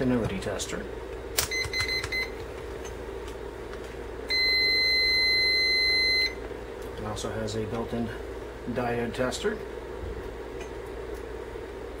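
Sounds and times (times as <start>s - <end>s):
multimeter continuity beep: 1.4s - 2.4s, 4.3s - 6.4s
short meter beep: 1.5s - 2.4s, 4.3s - 6.4s.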